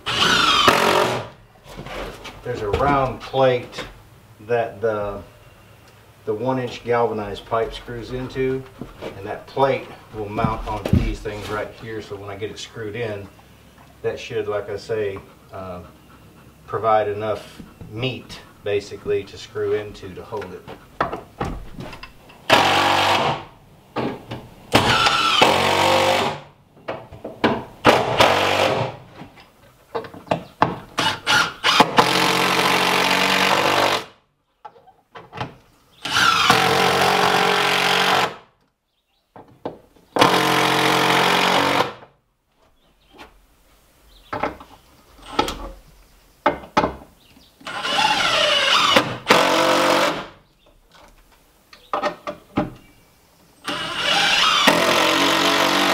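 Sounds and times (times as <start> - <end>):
cordless drill driving screws: 0.0 - 1.4, 22.5 - 23.4, 24.8 - 26.4, 31.0 - 34.1, 36.0 - 38.4, 40.2 - 42.0, 47.6 - 50.3, 53.6 - 55.9.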